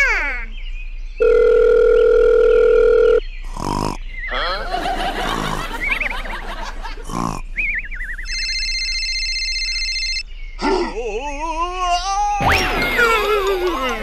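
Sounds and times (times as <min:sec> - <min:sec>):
telephone dial tone: 0:01.2 - 0:03.2, 0:08.3 - 0:10.2
warbling cartoon sound effects: 0:10.6 - 0:14.0.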